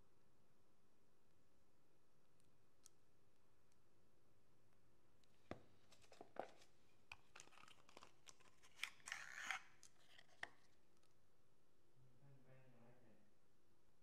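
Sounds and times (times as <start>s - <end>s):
lipstick case sliding from box: 8.5s - 10.4s.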